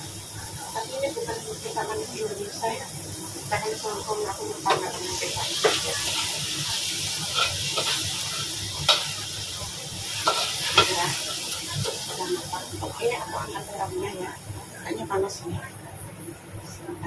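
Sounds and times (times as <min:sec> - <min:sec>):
chili sizzling in a wok: 0:00.0 - 0:17.0
metal spatula scraping wok: 0:04.7 - 0:09.4, 0:10.0 - 0:13.0.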